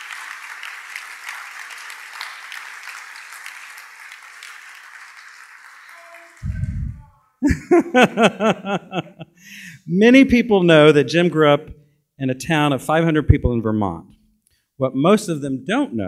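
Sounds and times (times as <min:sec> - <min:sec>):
audience applauding: 0:00.0 - 0:07.0
man speaking: 0:09.6 - 0:14.1, 0:14.8 - 0:16.0.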